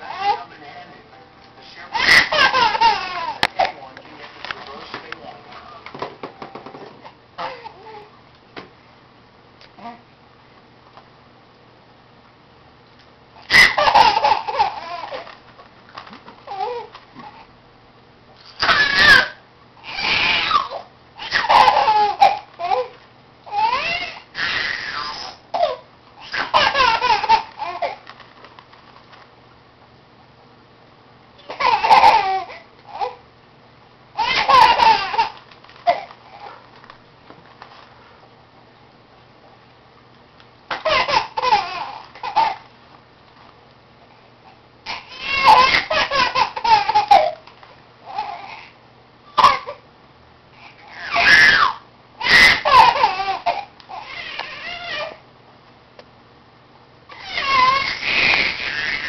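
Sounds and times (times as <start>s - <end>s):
baby laughing: 0.0s - 0.5s, 1.9s - 3.6s, 13.4s - 15.3s, 19.9s - 28.0s, 31.4s - 33.2s, 34.2s - 36.5s, 40.7s - 42.6s, 44.9s - 47.4s, 50.9s - 55.1s, 57.2s - 59.0s.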